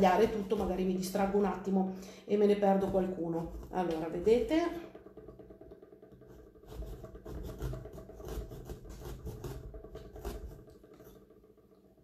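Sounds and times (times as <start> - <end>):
pumpkin scraping and rubbing: 0.0 - 1.7, 2.4 - 4.8, 6.2 - 11.3.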